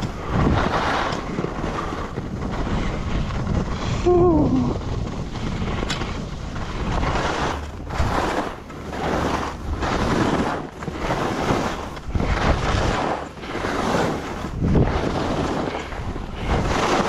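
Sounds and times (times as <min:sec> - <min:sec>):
skis scraping through snow: 0:00.0 - 0:17.0
wind buffeting microphone: 0:00.0 - 0:17.0.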